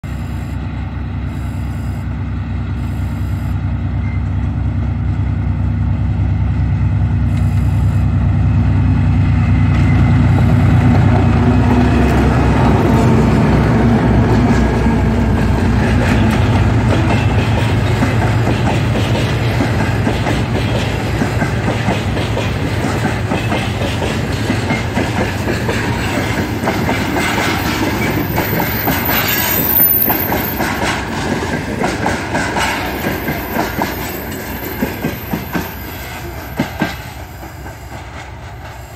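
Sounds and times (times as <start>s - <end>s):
diesel locomotive engines running: 0.0s - 38.9s
train wheels clicking over rail joints: 9.0s - 38.9s.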